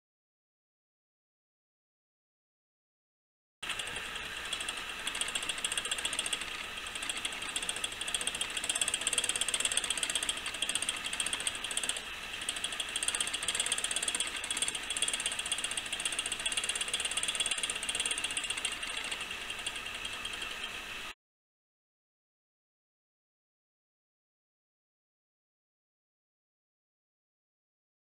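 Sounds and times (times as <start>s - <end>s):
clock movement ticking whirr: 3.6s - 21.2s.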